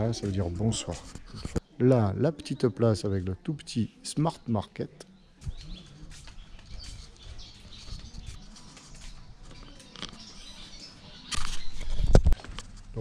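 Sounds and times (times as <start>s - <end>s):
rustling noise: 0.0s - 1.8s, 5.4s - 13.0s
footsteps on stone paving: 0.0s - 2.6s, 5.2s - 13.0s
small birds chirping: 0.0s - 13.0s.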